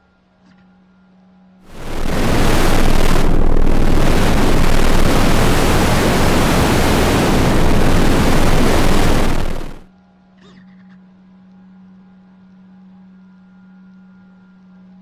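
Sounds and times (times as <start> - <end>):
loud static hiss: 1.7 - 9.9.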